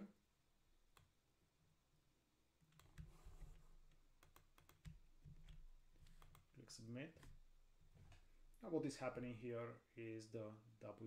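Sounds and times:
computer keyboard keys tapping: 0:02.7 - 0:06.5.

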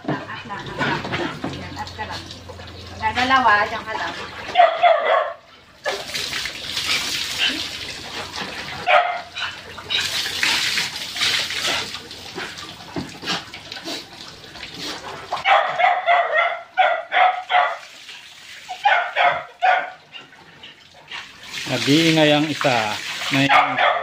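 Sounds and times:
water splashing over dog: 0:00.0 - 0:24.0
dog barking short high barks: 0:04.6 - 0:05.4, 0:08.9 - 0:09.3, 0:15.4 - 0:17.8, 0:18.7 - 0:20.0, 0:23.5 - 0:24.0.

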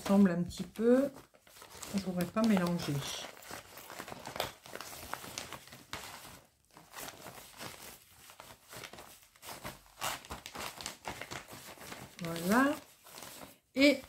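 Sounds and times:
plastic bag crinkling: 0:00.0 - 0:14.0.

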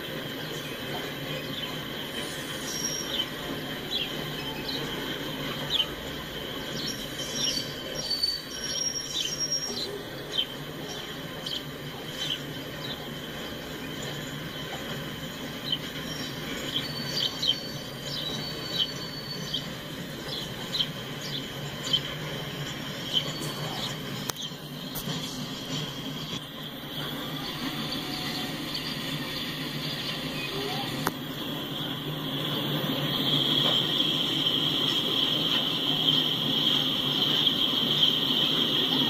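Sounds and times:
freight train rolling: 0:00.0 - 0:39.0
train clanks: 0:00.0 - 0:39.0
wheel squeals: 0:00.4 - 0:10.0, 0:12.2 - 0:39.0.

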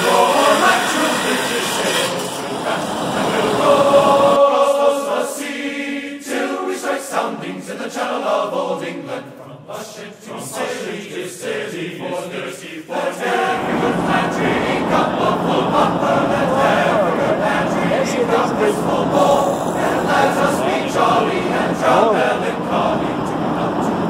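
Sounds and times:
choir singing: 0:00.0 - 0:24.0
low rumble of shop noise: 0:13.4 - 0:24.0.

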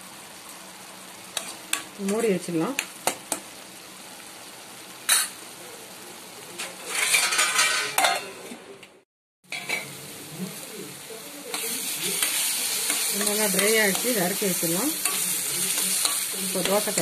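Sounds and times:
food sizzling in a frying pan: 0:00.0 - 0:08.7, 0:09.4 - 0:17.0
spoon stirring and clinking on pan: 0:06.9 - 0:08.4.

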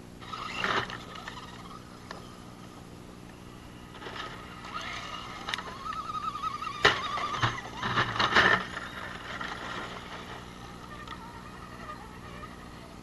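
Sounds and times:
toy car motor whine: 0:00.2 - 0:02.4, 0:04.3 - 0:13.0
tyres crunching over gravel: 0:03.8 - 0:12.0.

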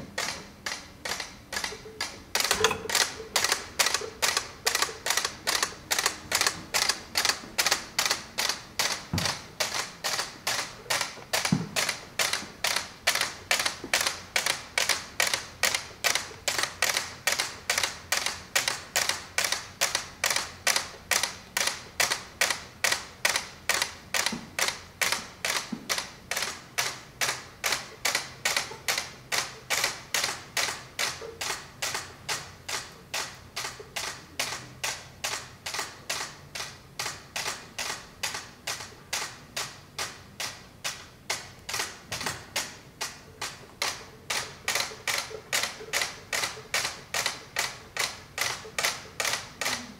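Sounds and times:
steady clicking: 0:00.0 - 0:49.9.

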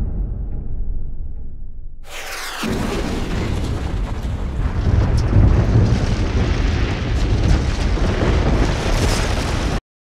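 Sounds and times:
building collapse explosion rumble: 0:02.6 - 0:09.8.

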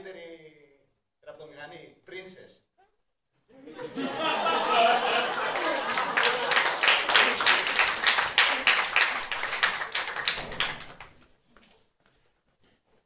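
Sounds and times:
audience applause: 0:04.3 - 0:11.1.

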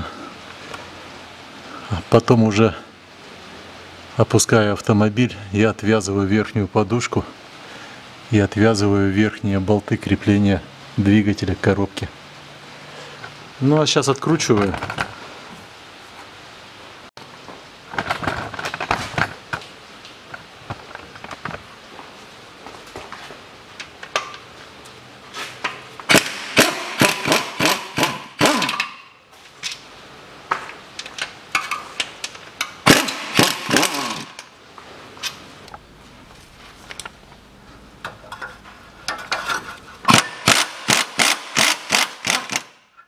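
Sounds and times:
ratchet wrench clicking: 0:32.9 - 0:34.5, 0:40.1 - 0:42.7.

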